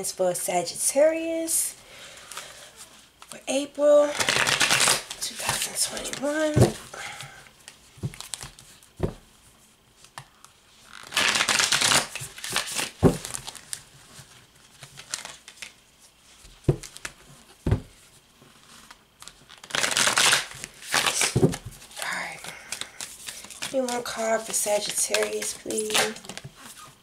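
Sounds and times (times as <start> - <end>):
cards being shuffled: 4.1 - 6.8, 10.0 - 15.8, 18.5 - 27.0.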